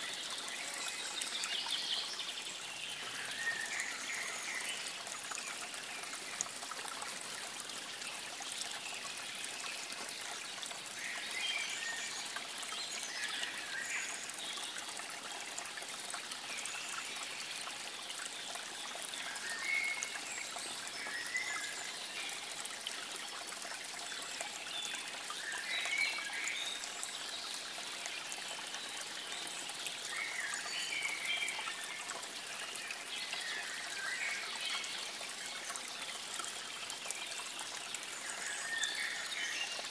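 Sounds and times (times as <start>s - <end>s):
water trickling: 0.0s - 39.9s.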